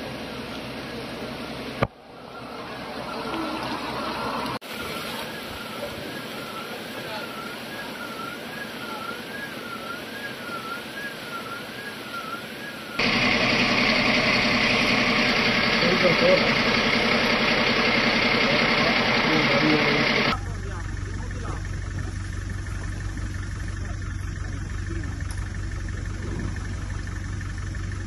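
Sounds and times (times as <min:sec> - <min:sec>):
floodwater rushing: 0:00.0 - 0:20.4
fire engine running: 0:00.0 - 0:28.0
faint wavering siren: 0:01.9 - 0:20.4.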